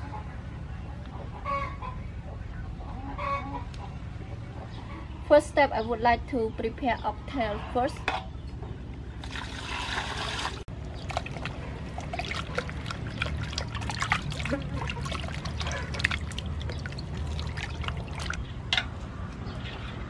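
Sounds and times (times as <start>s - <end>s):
water pouring into metal basin: 9.2s - 18.4s
small splashes and drips: 9.2s - 18.5s.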